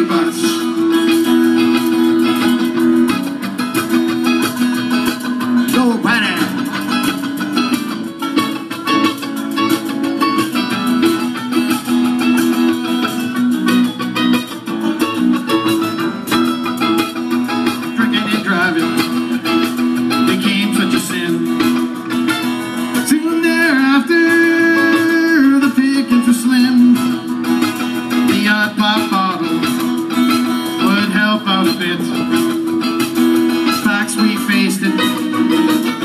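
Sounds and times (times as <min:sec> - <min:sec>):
picked banjo: 0:00.0 - 0:36.0
strummed acoustic guitar: 0:00.0 - 0:36.0.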